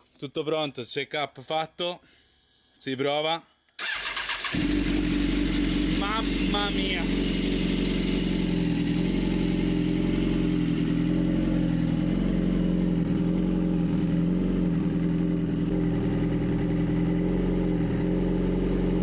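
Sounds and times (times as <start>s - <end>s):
motorcycle engine idling: 3.8s - 19.0s.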